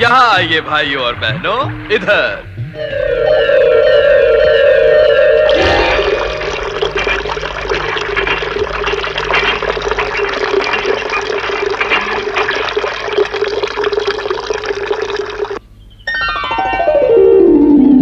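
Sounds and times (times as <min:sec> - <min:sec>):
steady hum: 0:00.0 - 0:16.0
falling whistle-like glide: 0:02.6 - 0:06.6
water gushing from a tap: 0:05.6 - 0:15.6.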